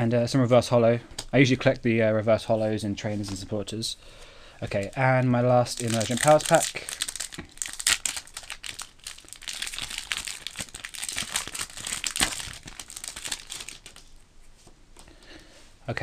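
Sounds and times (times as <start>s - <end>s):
foil wrapper crinkling and tearing: 5.6s - 14.1s.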